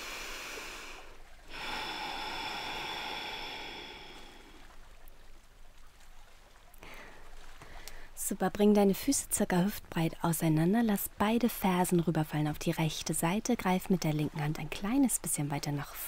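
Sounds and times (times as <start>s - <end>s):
person breathing: 0.0s - 4.7s, 6.8s - 8.1s.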